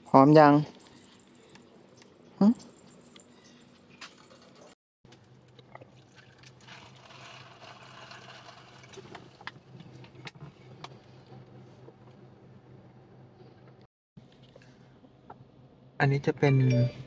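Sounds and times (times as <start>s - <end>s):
car engine low hum: 8.9s - 16.5s.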